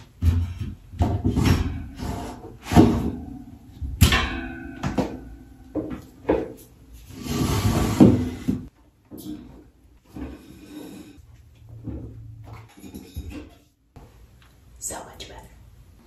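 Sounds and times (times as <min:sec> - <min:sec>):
metal shoe rack knocking and scraping: 0:00.0 - 0:06.7
metal clank: 0:01.0 - 0:06.5.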